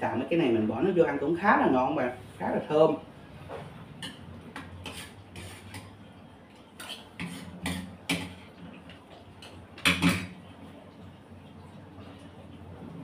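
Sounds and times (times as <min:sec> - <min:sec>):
spoon scraping a bowl: 0:04.0 - 0:06.1, 0:06.8 - 0:08.6.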